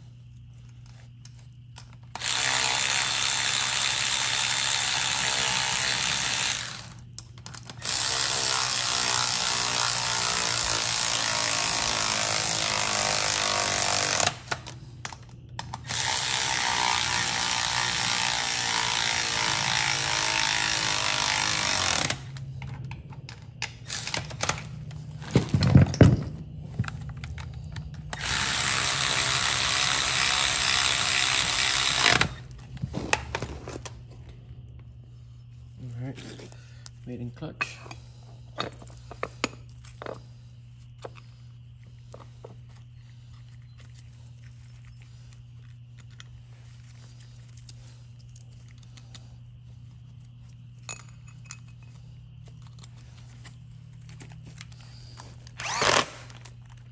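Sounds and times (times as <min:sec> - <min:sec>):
power ratchet running: 0:02.2 - 0:07.0, 0:07.8 - 0:14.6, 0:15.8 - 0:22.3, 0:28.1 - 0:32.4, 0:55.6 - 0:56.3.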